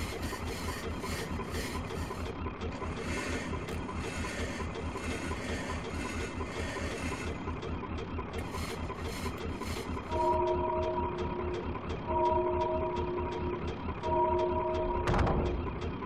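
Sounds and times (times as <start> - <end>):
mechanical clatter and rattling: 0.0 - 10.3, 14.9 - 16.0.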